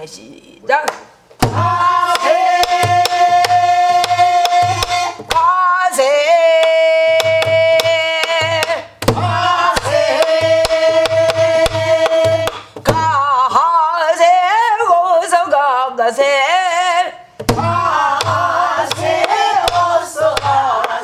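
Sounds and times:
barrel drum struck: 1.4s - 5.5s, 7.2s - 13.2s, 17.4s - 20.6s
woman singing folk song: 11.6s - 17.2s.

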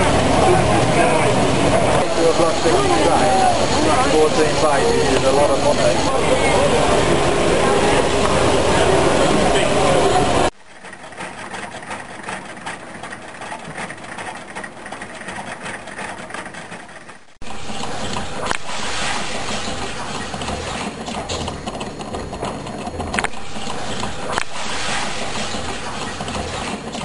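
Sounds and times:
loud mechanical clatter: 0.0s - 27.0s
quiet rapid engine ticking: 10.3s - 18.6s.

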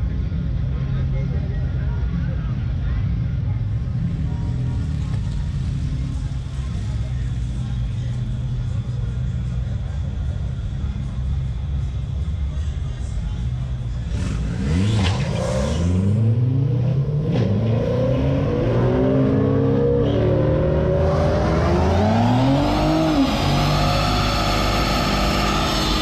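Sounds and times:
truck engine revving: 14.0s - 26.0s.

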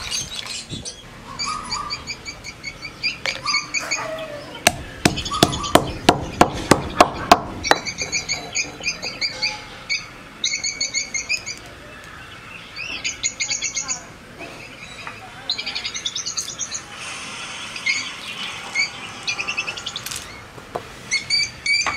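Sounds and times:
birds chirping: 0.0s - 21.9s
stone pestle pounding in mortar: 4.7s - 8.1s.

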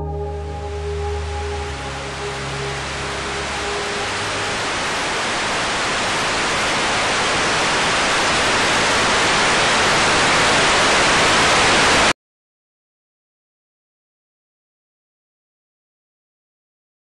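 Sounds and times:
television static hiss: 2.1s - 12.1s.

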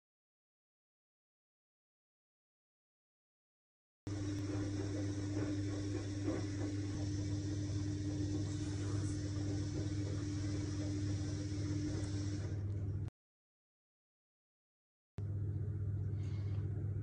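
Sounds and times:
machine hum: 4.1s - 13.1s.

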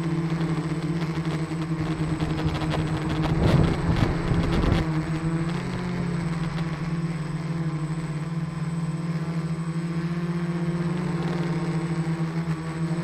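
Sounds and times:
motor and propeller hum: 0.0s - 13.0s.

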